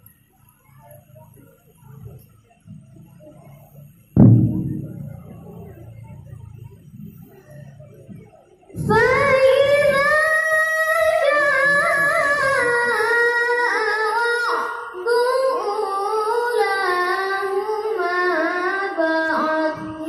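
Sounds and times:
person reciting melodically over loudspeaker: 0:08.8 - 0:20.0.

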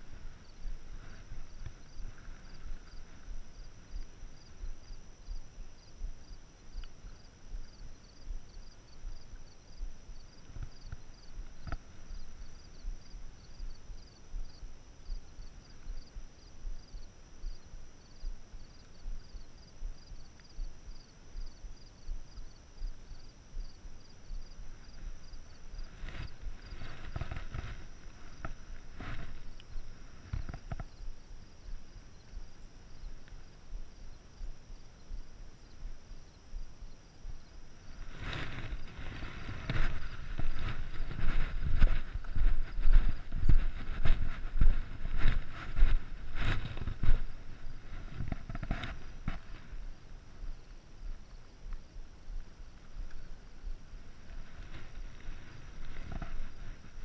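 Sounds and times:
wind: 0:00.0 - 0:57.0
rustling and crunching on rocks: 0:24.6 - 0:31.1, 0:37.9 - 0:50.6, 0:52.8 - 0:57.0.

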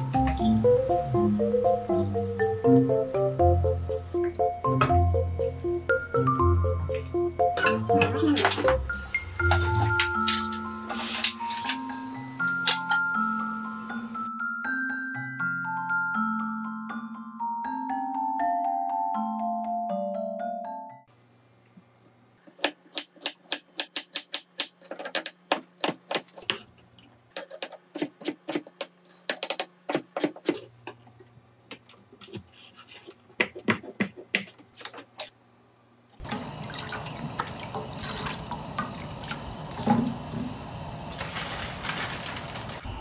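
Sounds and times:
knife chopping on wooden board: 0:22.5 - 0:26.6, 0:33.4 - 0:35.0.

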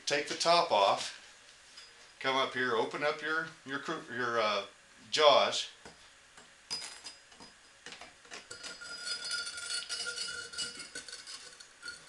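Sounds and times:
metal tongs clinking and scraping: 0:08.3 - 0:12.0
steady ringing tone: 0:08.5 - 0:12.0.

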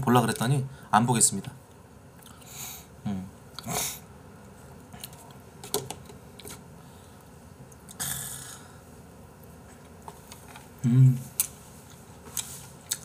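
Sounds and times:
breathy hiss: 0:02.3 - 0:03.0, 0:08.0 - 0:08.9.

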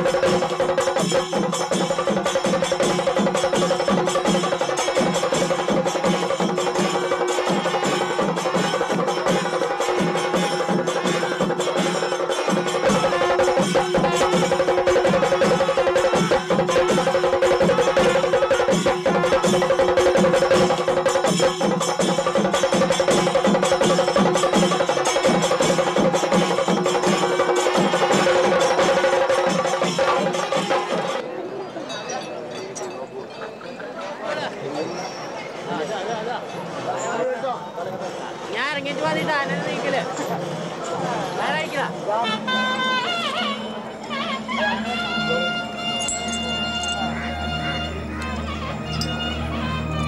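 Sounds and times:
fast drum strokes: 0:00.0 - 0:31.2
pipes and horns holding tones: 0:42.2 - 0:50.0.

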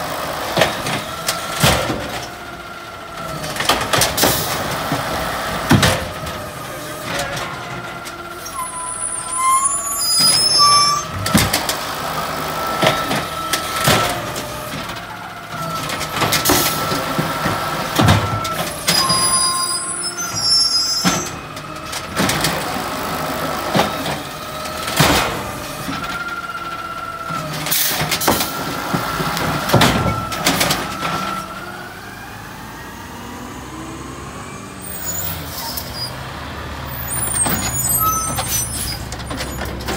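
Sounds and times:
garbage truck engine: 0:00.0 - 0:39.9
hydraulic arm whining: 0:00.6 - 0:32.7
carts banging against hopper: 0:03.3 - 0:08.1, 0:10.1 - 0:19.7, 0:27.4 - 0:31.5.

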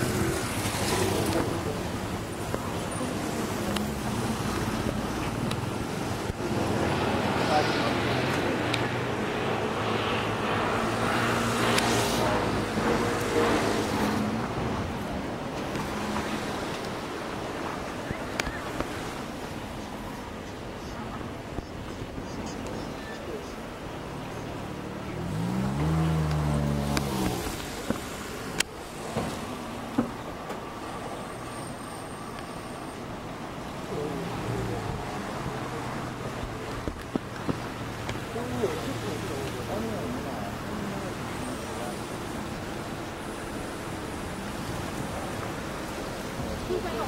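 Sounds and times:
steady rushing noise: 0:00.0 - 0:31.4.

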